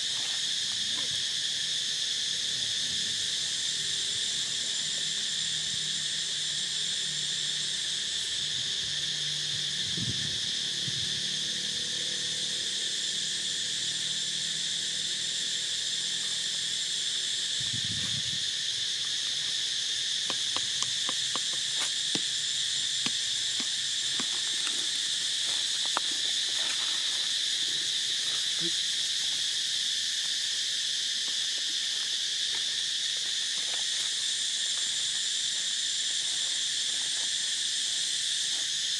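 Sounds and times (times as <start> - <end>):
high-pitched insect chorus: 0.0 - 38.9.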